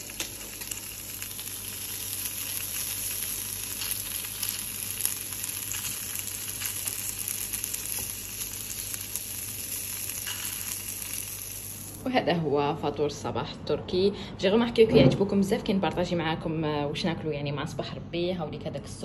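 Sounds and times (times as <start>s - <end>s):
sausage sizzling in a frying pan: 0.0s - 12.1s.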